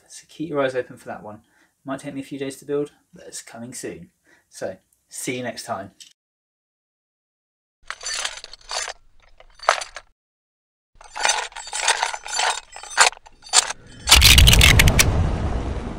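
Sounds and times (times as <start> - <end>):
clinking footstep sound effects: 7.9 - 10.1, 11.0 - 15.0
loud crash with deep rumble: 14.5 - 15.9.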